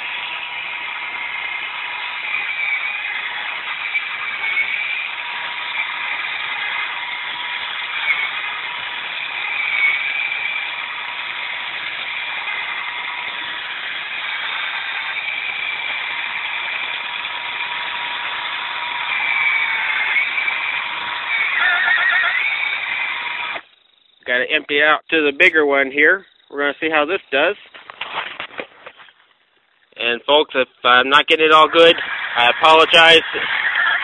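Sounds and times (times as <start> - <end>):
electric drill whirring in soil: 0.0 - 24.2, 31.2 - 34.0.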